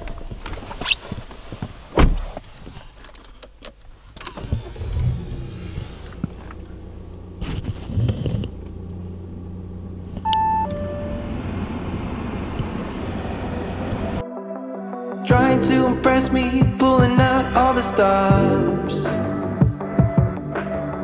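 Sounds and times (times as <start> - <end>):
car engine starting and idling: 3.1 - 14.2
two-note dashboard chime: 10.2 - 11.6.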